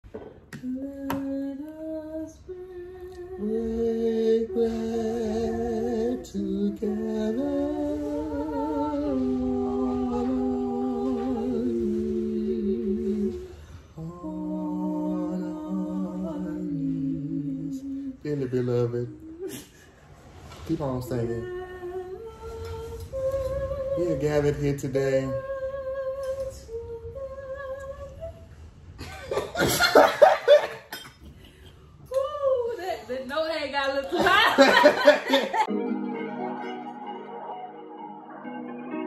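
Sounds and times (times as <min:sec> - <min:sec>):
man humming a slow tune: 0:00.6 - 0:19.8.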